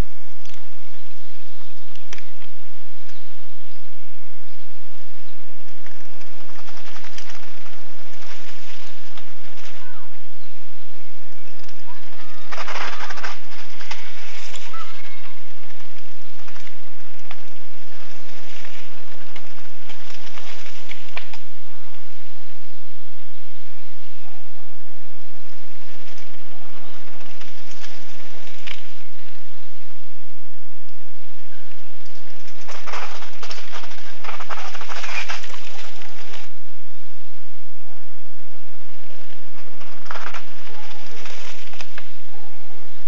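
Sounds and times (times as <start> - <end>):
bike clicks and crackles: 1.6 - 3.3, 5.6 - 10.1, 11.3 - 22.0, 25.7 - 29.4, 30.9 - 36.6, 39.2 - 42.4.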